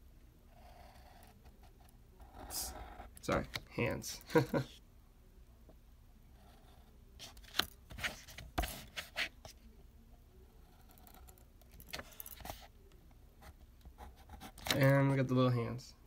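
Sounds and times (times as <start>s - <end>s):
marker pen scratching on paper: 0.5s - 3.2s, 6.3s - 9.6s, 13.4s - 14.8s.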